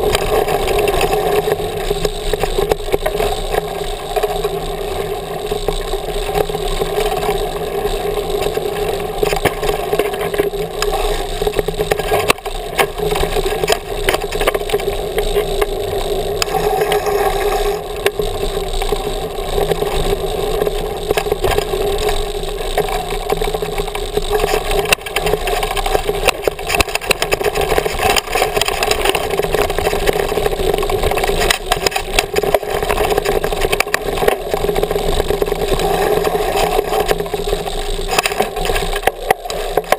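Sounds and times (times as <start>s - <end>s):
bike knocks and rattles: 0.0s - 39.9s
wind and tyres rumbling: 0.0s - 39.9s.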